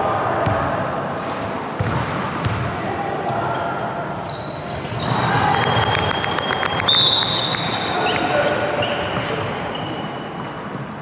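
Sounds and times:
voices in a hall: 0:00.0 - 0:11.0
basketball bouncing on court: 0:01.8 - 0:02.7.

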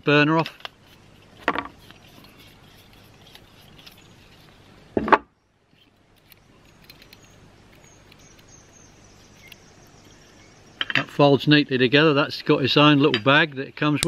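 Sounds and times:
small metal clicks: 0:05.8 - 0:08.5.

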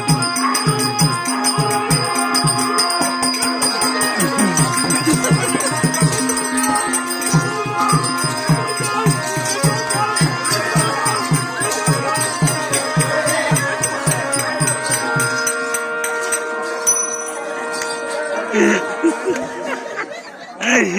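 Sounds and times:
jingling bells: 0:00.0 - 0:20.3
fast drum beat: 0:04.2 - 0:14.6
held tones: 0:16.8 - 0:18.9.

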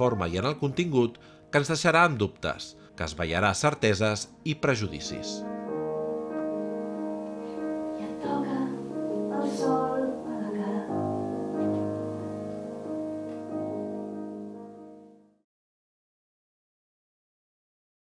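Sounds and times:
slow piano music: 0:00.0 - 0:15.4
person singing: 0:07.5 - 0:12.0.

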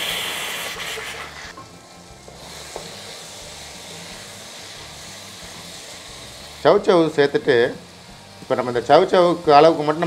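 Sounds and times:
vegetables sizzling in hot oil: 0:00.0 - 0:10.0
wooden spatula stirring in pan: 0:01.5 - 0:07.0.

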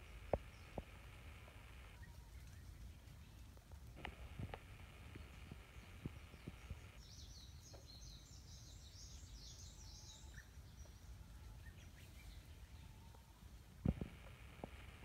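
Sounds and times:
steady low rumble: 0:00.0 - 0:07.7, 0:13.5 - 0:15.0
songbird chirping: 0:00.0 - 0:15.0.

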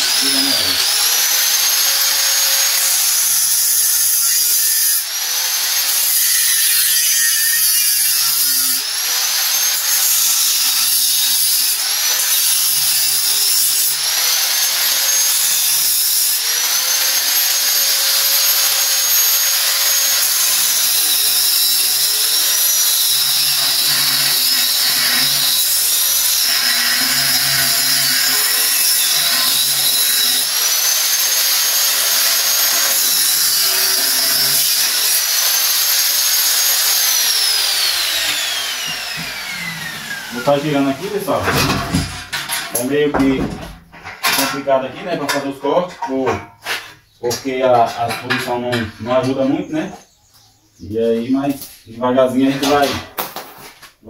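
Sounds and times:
angle grinder cutting: 0:00.0 - 0:43.0.

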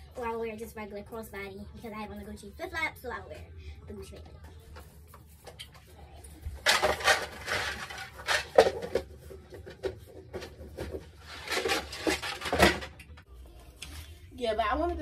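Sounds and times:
rustling and clattering rummage: 0:06.5 - 0:13.2.

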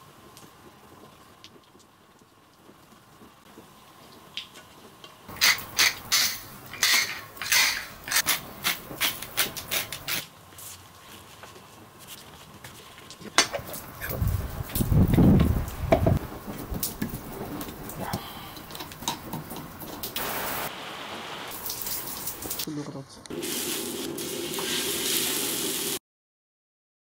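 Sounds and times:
pepper mill grinding: 0:05.3 - 0:10.3.

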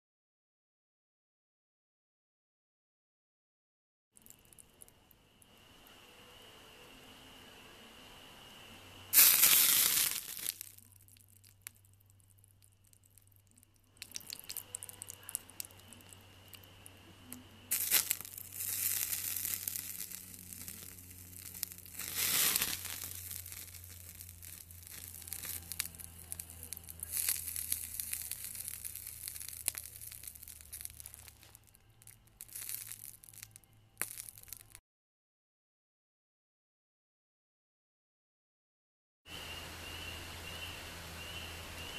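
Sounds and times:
hot wax crackling and spitting: 0:04.2 - 0:05.9, 0:09.1 - 0:34.8.

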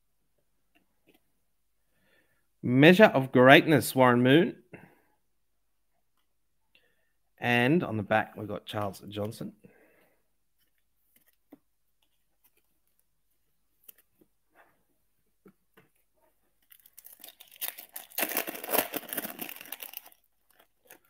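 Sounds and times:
foil pack tearing and crinkling: 0:16.6 - 0:21.0.

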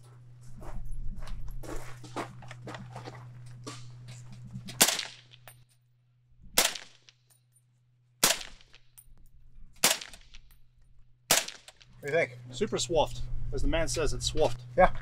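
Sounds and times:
suppressed rifle shots: 0:04.8 - 0:05.3, 0:06.6 - 0:07.0, 0:08.2 - 0:08.7, 0:09.8 - 0:10.4, 0:11.3 - 0:11.8.

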